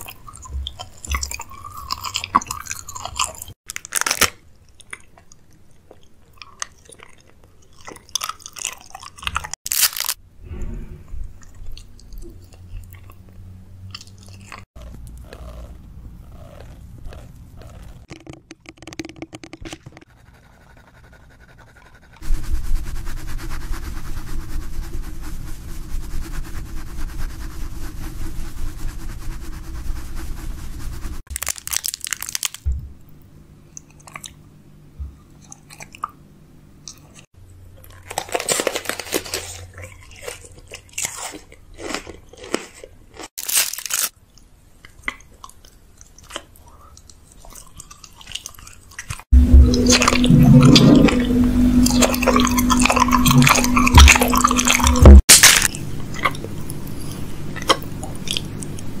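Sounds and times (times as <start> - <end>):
close-miked food crunching: 0.0 - 10.2, 11.4 - 20.0, 31.3 - 32.7, 33.7 - 34.4, 37.8 - 49.3, 54.6 - 59.0.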